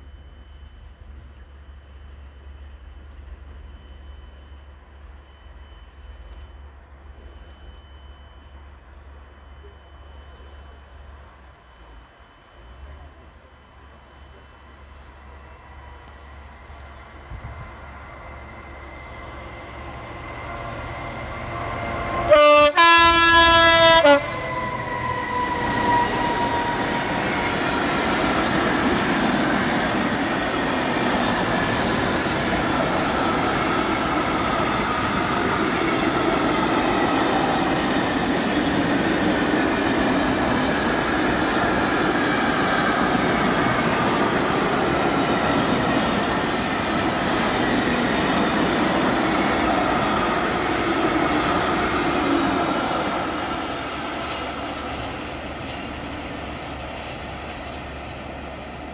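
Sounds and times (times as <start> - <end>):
freight train rumbling past: 0.0 - 58.9
locomotive horn blast: 21.9 - 27.1.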